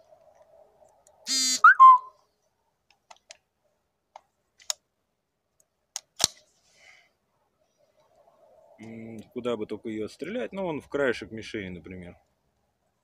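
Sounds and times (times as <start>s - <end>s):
rising chirp: 1.3s - 2.2s.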